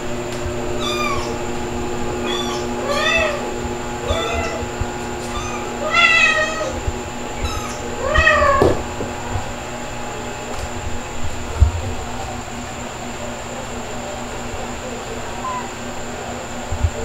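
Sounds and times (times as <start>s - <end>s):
cat meowing: 0.8s - 1.4s, 2.2s - 6.8s, 7.4s - 8.8s, 15.4s - 15.8s.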